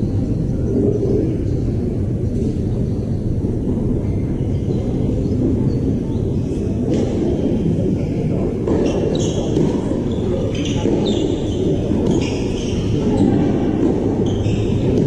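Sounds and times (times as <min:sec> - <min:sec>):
steady low rumble: 0:00.0 - 0:10.5.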